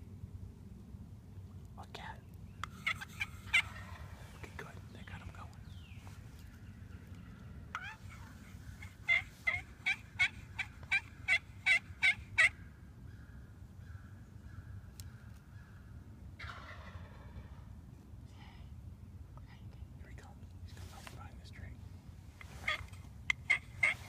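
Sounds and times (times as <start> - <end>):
turkey yelps: 2.6 - 4.2, 7.7 - 12.6, 16.4 - 17.3, 22.4 - 24.0
rough turkey call: 2.6 - 4.4, 7.7 - 13.3, 16.4 - 17.6, 22.4 - 24.0.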